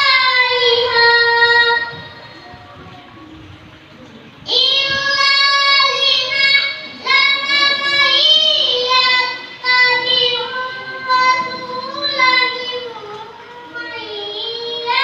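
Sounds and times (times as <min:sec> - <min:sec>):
boy reciting melodically: 0:00.0 - 0:15.0.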